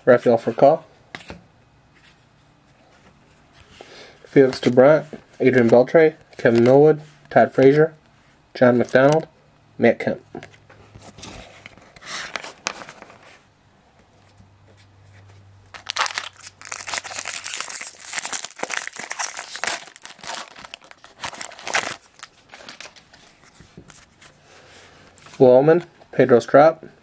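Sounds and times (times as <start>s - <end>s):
foil wrapper crinkling and tearing: 15.7s - 23.4s.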